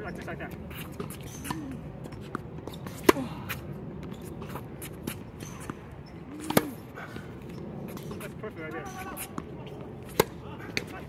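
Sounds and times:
tennis racket hitting ball: 6.4 - 6.8, 8.9 - 10.9.

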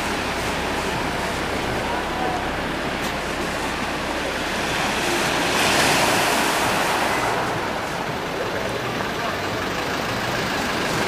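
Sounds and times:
sea surf against rocks: 0.0 - 9.2.

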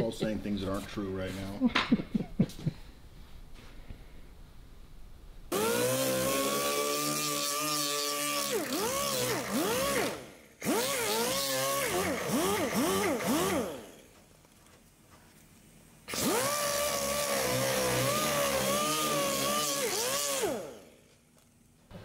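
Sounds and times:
power tool whining: 5.5 - 14.1, 16.1 - 21.1.

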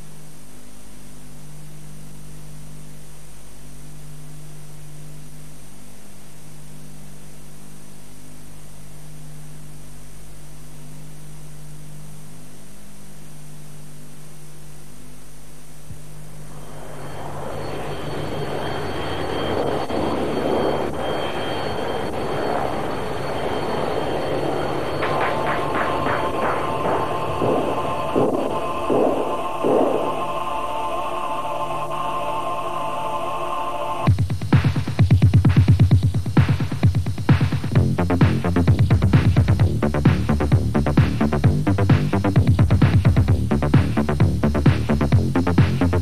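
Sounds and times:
electrical hum with hiss: 0.0 - 46.0
aircraft engine rushing and whine: 16.4 - 34.1.

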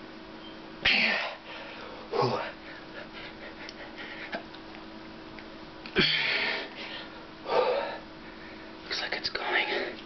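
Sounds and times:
faint steady hum: 0.0 - 10.0
man exhaling forcefully: 6.0 - 6.7.

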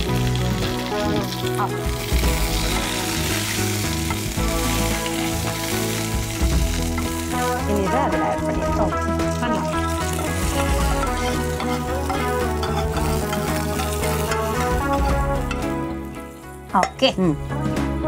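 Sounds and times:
seeds sizzling in hot oil: 0.0 - 17.1
metal spoon stirring in pan: 9.8 - 15.8.

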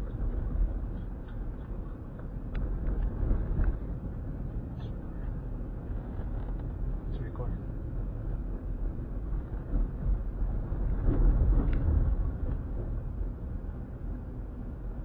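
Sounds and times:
car engine and tyres on road: 0.0 - 15.0.

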